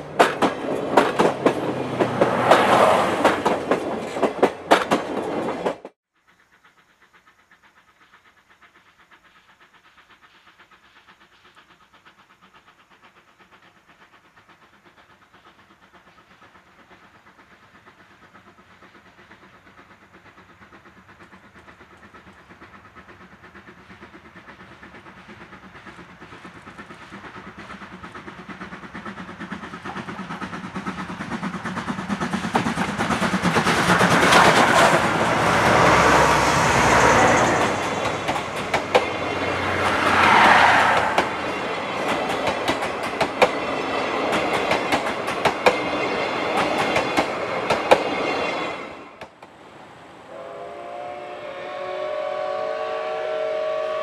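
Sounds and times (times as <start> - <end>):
wheels clicking over rail joints: 0.0 - 5.9, 14.2 - 49.6
train passing close by: 0.0 - 54.0.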